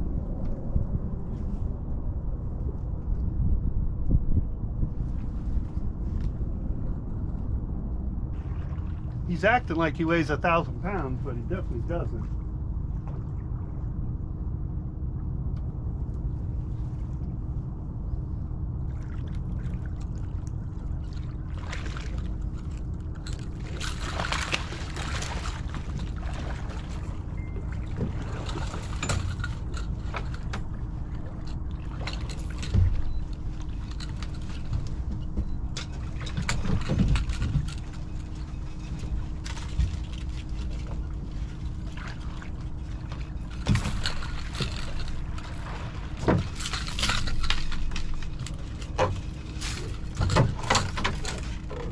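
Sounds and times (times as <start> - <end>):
boat low rumble: 0.0 - 51.9
constant hum: 0.0 - 51.9
knocks and clatter from fishing gear: 22.2 - 51.9.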